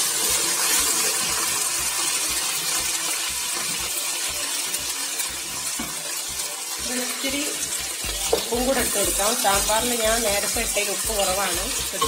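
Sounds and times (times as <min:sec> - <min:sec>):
vegetables sizzling in hot oil: 0:00.0 - 0:12.0
wooden spatula knocking: 0:08.2 - 0:09.0.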